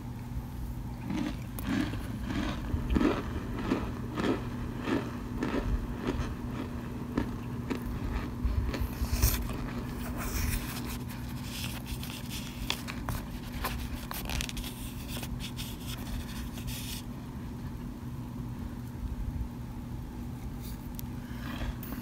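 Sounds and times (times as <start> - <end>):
steady low hum: 0.0 - 22.0
plastic spoon scraping cornstarch: 8.7 - 17.1.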